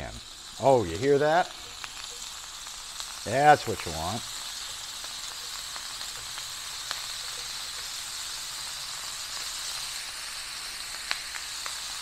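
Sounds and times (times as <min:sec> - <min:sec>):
meat sizzling in a pan: 0:00.0 - 0:12.0
small oil pops: 0:01.5 - 0:03.2, 0:04.4 - 0:08.0.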